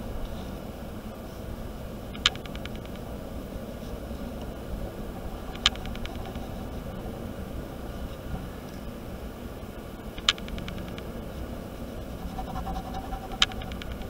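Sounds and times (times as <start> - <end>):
low room rumble: 0.0 - 14.0
sharp clicks with faint ticks: 2.1 - 3.1, 5.5 - 6.6, 10.2 - 11.1, 12.3 - 14.0.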